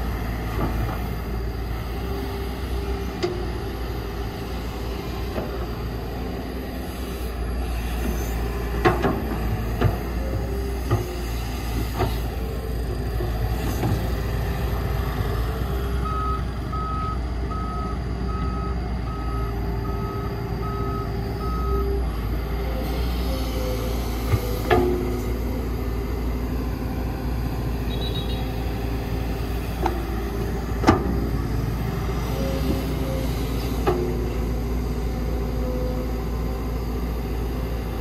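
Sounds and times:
heavy diesel machinery running: 0.0 - 38.0
reversing alarm beeping: 15.8 - 25.1, 27.7 - 28.8.

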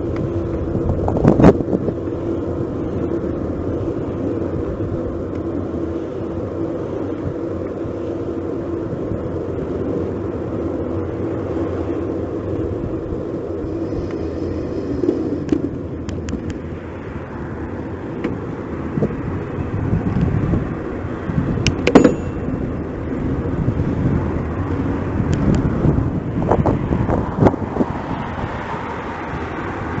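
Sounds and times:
bicycle riding rumble on road: 0.0 - 30.0
sharp clicks and knocks: 21.6 - 22.5.

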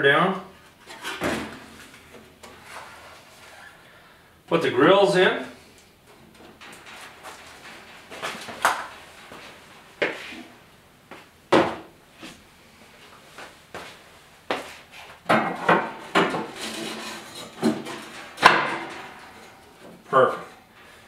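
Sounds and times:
metal grates clattering: 6.1 - 10.0, 15.3 - 21.0
metal knocks and clunks: 15.3 - 20.7.

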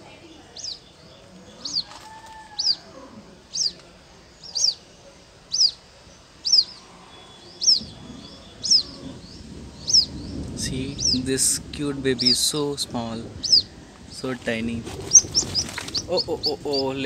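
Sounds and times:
water-bird chick peeping: 0.6 - 2.8, 3.5 - 3.8, 4.4 - 4.8, 5.5 - 5.8, 6.4 - 10.4, 13.4 - 13.7, 14.9 - 17.0.

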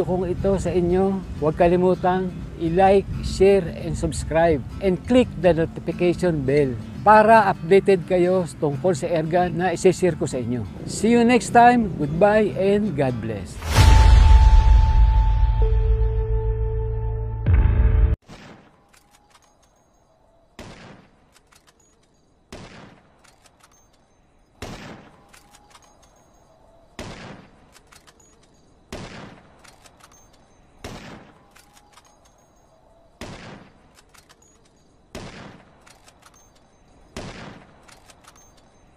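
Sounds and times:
rifle gunshots: 20.6 - 21.2, 22.5 - 23.2, 24.6 - 25.3, 27.0 - 27.7, 28.9 - 29.7, 30.8 - 31.5, 33.2 - 34.0, 35.1 - 36.0, 37.2 - 38.2
light clicks: 21.3 - 22.2, 23.2 - 24.1, 25.2 - 26.4, 27.6 - 28.7, 29.5 - 30.6, 31.5 - 32.6, 33.9 - 34.9, 35.8 - 36.9, 37.8 - 38.9.

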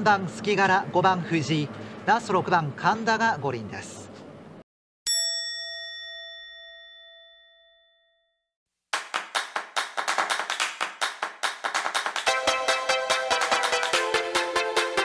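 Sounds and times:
bell chime: 5.1 - 8.4
electronic music: 11.8 - 15.0.

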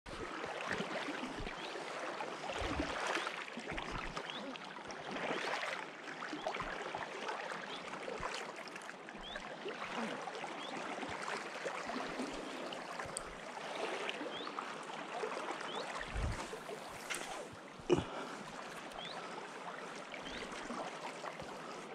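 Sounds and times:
dull low thumps: 16.1 - 16.5.

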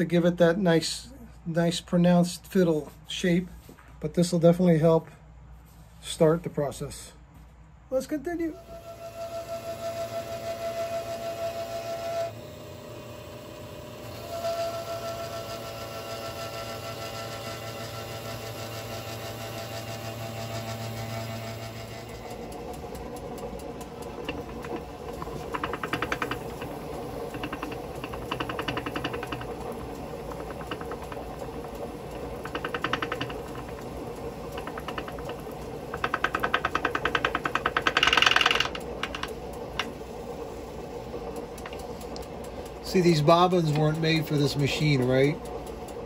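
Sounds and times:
sewing machine motor humming: 8.5 - 46.0
fast even rattling: 22.0 - 46.0.

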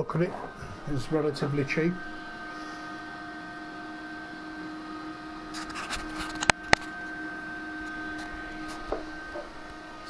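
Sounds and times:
induction heater hum: 0.0 - 10.0.

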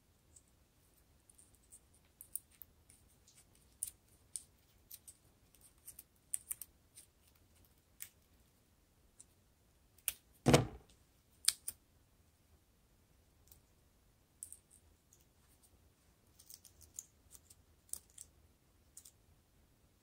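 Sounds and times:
loud knock: 10.5 - 10.8
plastic straw clicks and crinkles: 16.3 - 18.3.

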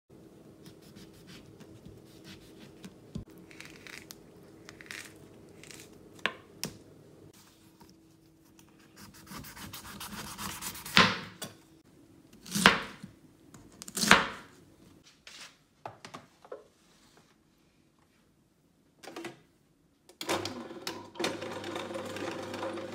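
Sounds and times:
knife sawing through fruit: 9.0 - 11.0.

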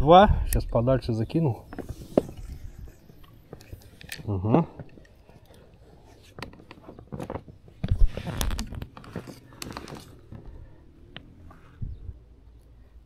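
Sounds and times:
knocking and scraping: 1.6 - 10.6
fishing gear clicking and knocking: 1.7 - 11.3.

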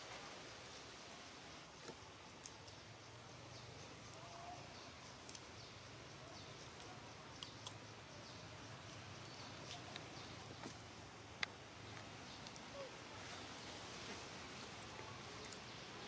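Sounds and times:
faint steady hiss: 0.0 - 16.0
faint sharp clicks: 5.2 - 5.5, 6.8 - 7.8.

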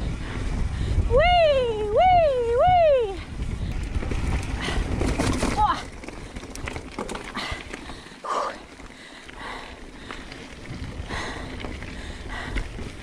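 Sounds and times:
wind on microphone: 0.0 - 6.8, 10.3 - 13.0
bike tyres rumbling on trail: 0.0 - 13.0
knocks and rattles: 4.2 - 7.9.

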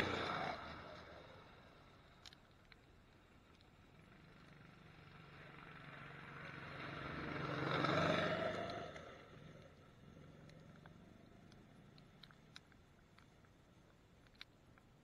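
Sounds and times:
snowmobile engine passing: 5.2 - 9.0.

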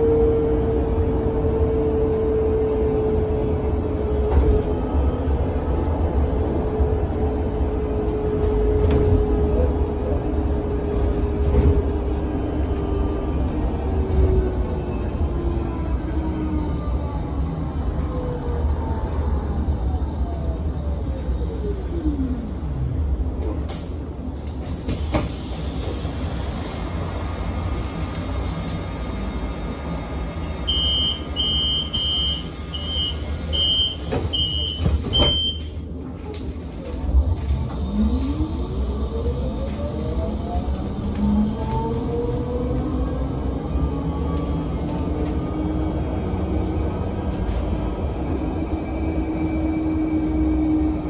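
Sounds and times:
bus rumbling: 0.0 - 51.0
short electronic warning beeps: 30.7 - 35.8.

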